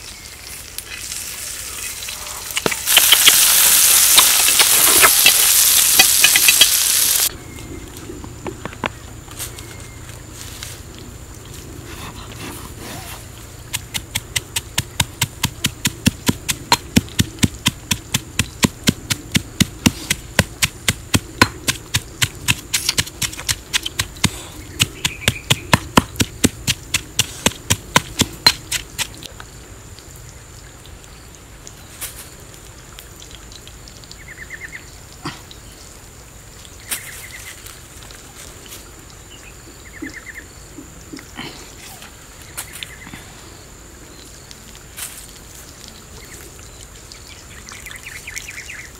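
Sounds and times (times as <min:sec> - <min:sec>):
stone pestle pounding in mortar: 0:13.7 - 0:29.1.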